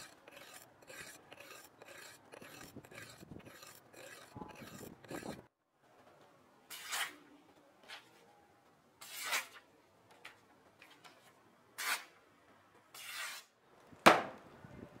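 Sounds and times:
knife slicing through paper: 0:00.0 - 0:05.4.

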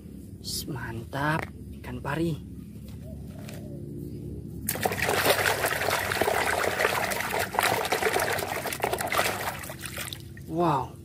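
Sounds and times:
water splashing in a basin: 0:04.7 - 0:10.5.

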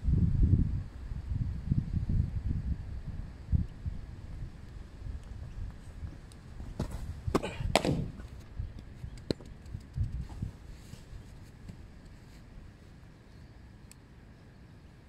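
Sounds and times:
cricket ball knocking on turf: 0:06.7 - 0:10.5.

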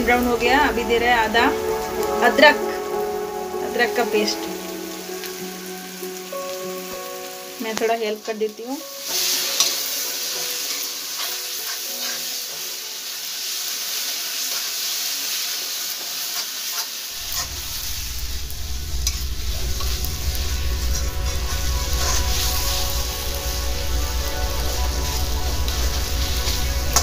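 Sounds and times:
low rumble: 0:00.0 - 0:06.2, 0:17.2 - 0:27.0
onions sizzling in oil: 0:00.0 - 0:27.0.

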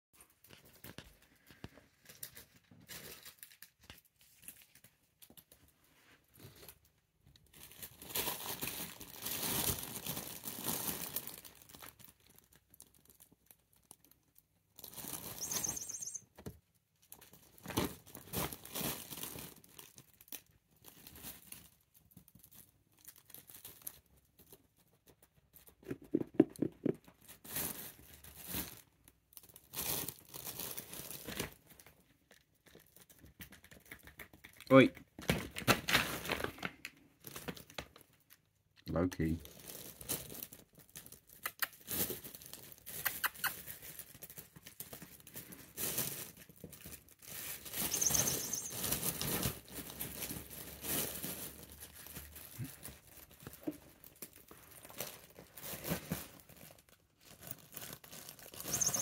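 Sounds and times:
shopping bags crinkling: 0:07.5 - 0:13.4, 0:14.8 - 0:16.2, 0:17.4 - 0:21.8, 0:27.3 - 0:31.8, 0:39.5 - 0:43.0, 0:43.6 - 0:59.0.

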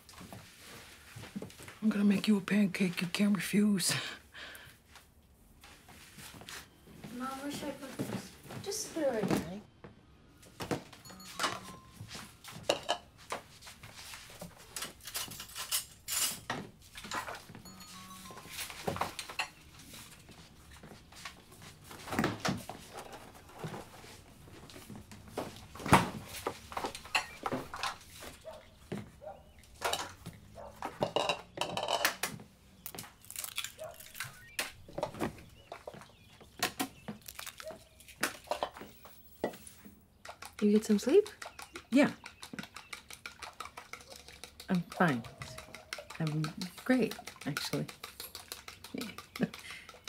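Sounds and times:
bowls and utensils clinking: 0:11.0 - 0:13.1, 0:14.6 - 0:20.4, 0:26.2 - 0:28.7, 0:29.4 - 0:32.3, 0:35.6 - 0:50.0
dishes and utensils clinking: 0:11.0 - 0:13.1, 0:14.5 - 0:20.4, 0:26.7 - 0:28.1, 0:29.8 - 0:32.3, 0:38.4 - 0:39.9.

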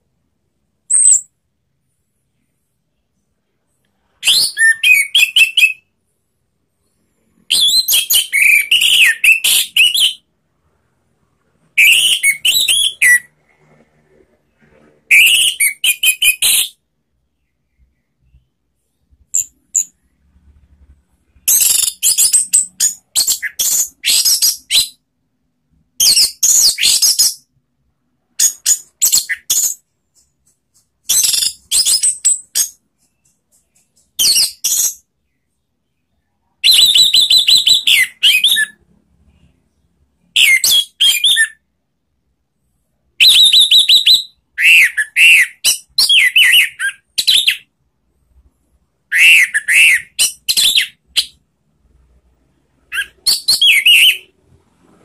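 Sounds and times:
thrush singing whistled song: 0:00.8 - 0:01.4, 0:04.0 - 0:06.0, 0:06.8 - 0:10.8, 0:11.6 - 0:13.4, 0:15.1 - 0:25.1, 0:25.9 - 0:27.6, 0:28.3 - 0:41.7, 0:43.1 - 0:47.7, 0:49.0 - 0:51.4, 0:52.8 - 0:54.4.

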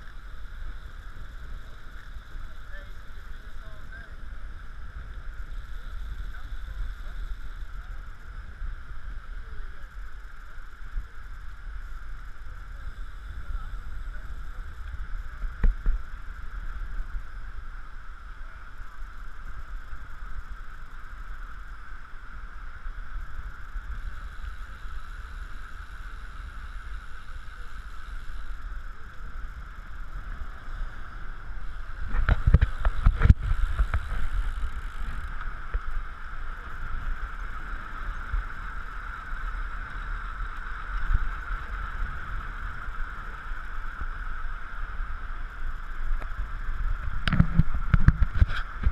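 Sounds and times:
bicycle road rumble on asphalt: 0:00.0 - 0:48.9
wind rush: 0:28.4 - 0:48.9.

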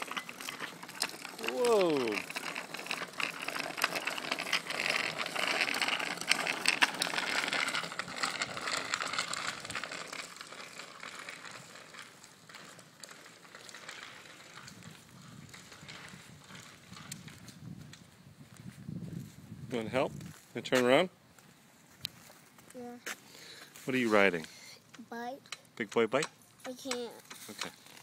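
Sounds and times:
bicycle tyres crunching on grit: 0:00.0 - 0:24.6, 0:27.4 - 0:28.0.

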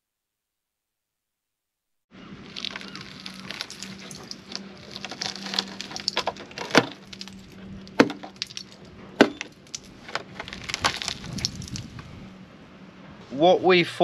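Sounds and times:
rusted metal crackling and crunching: 0:02.3 - 0:12.4.

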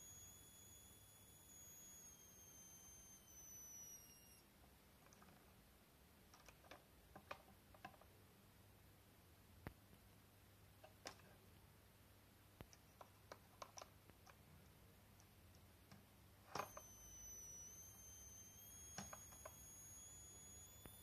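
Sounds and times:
high-pitched coil whine: 0:00.0 - 0:04.5, 0:16.4 - 0:21.0.

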